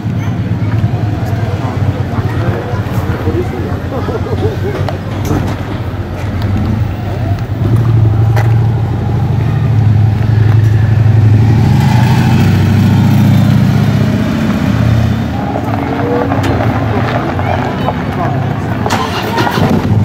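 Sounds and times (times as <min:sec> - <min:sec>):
motorcycle engine passing: 0:06.4 - 0:20.0.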